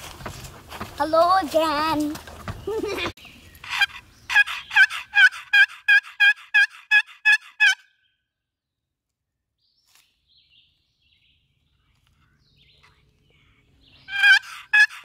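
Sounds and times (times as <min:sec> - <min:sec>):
turkey call yelps: 0:03.6 - 0:08.0, 0:14.1 - 0:15.0.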